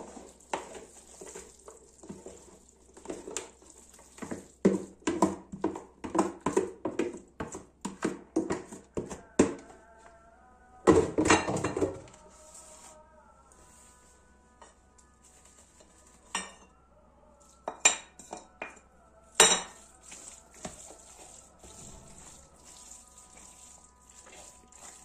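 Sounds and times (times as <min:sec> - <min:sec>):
hand scraping wet minced meat: 0:00.0 - 0:09.4, 0:12.2 - 0:14.2, 0:19.8 - 0:25.0
background music: 0:07.5 - 0:25.0.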